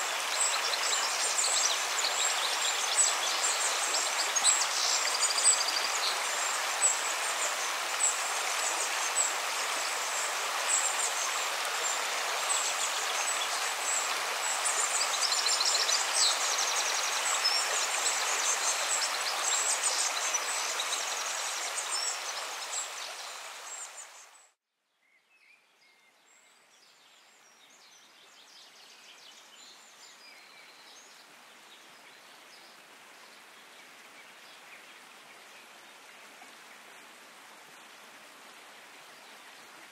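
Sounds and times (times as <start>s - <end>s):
rocky stream running: 0.0s - 24.2s.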